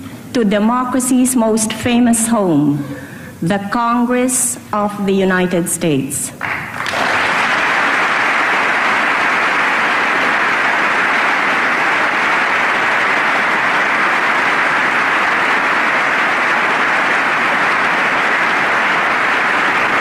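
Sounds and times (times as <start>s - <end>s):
audience applauding: 6.4s - 20.0s.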